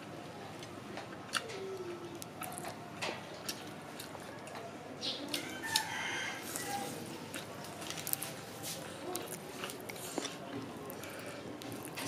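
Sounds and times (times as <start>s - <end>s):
chewing crispy fried chicken: 0.4s - 12.0s
rooster crowing: 5.4s - 7.0s.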